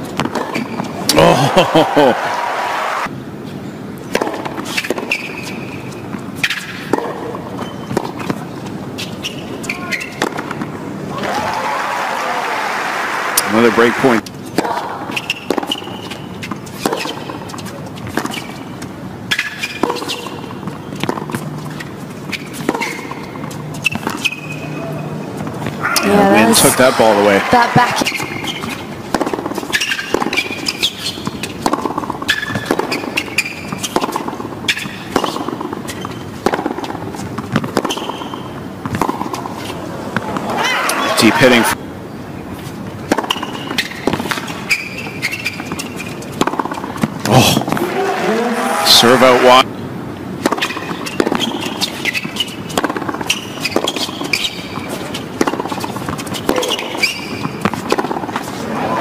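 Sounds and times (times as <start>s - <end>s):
racket hitting tennis ball: 0.0s - 1.1s, 4.1s - 8.4s, 9.0s - 10.8s, 14.5s - 18.6s, 19.3s - 24.6s, 27.7s - 41.0s, 43.0s - 49.6s, 50.4s - 59.0s
sneaker squeaks on court: 4.7s - 8.4s, 9.0s - 10.4s, 15.1s - 25.0s, 27.9s - 28.9s, 29.6s - 31.5s, 32.2s - 36.3s, 37.3s - 39.7s, 43.2s - 46.8s, 50.5s - 58.1s.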